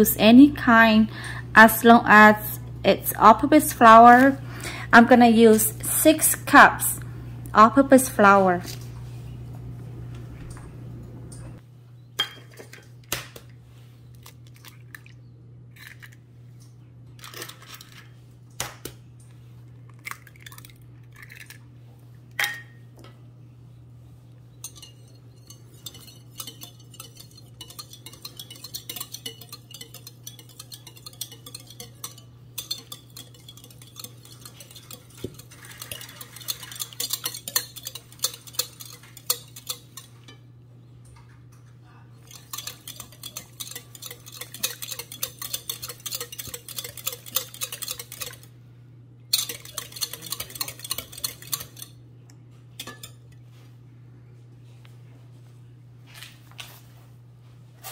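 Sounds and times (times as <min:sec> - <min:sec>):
low steady hum: 0:00.0 - 0:57.9
whisk clinking against glass bowl: 0:24.6 - 0:40.4, 0:42.2 - 0:48.5, 0:49.3 - 0:52.0.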